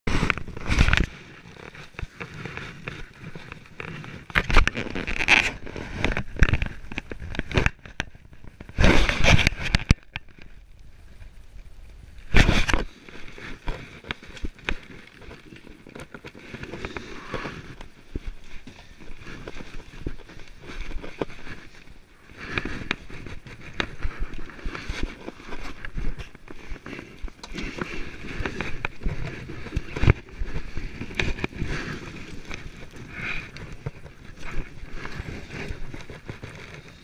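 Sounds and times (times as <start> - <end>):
rubbing and scraping on camera housing: 0.1 - 10.5, 12.3 - 37.0.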